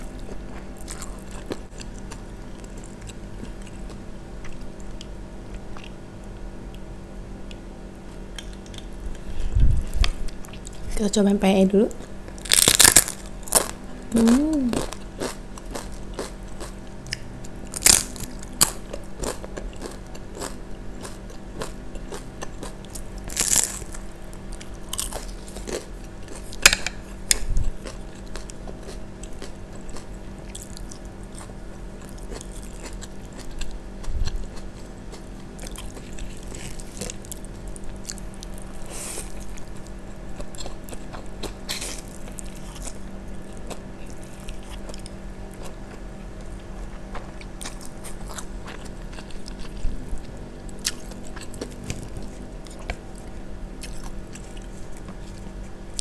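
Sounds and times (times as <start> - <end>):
faint low hum: 0.0 - 56.0
chewing food: 0.1 - 6.8, 12.0 - 56.0
crunching bites of cracker: 12.4 - 13.7, 17.7 - 24.0.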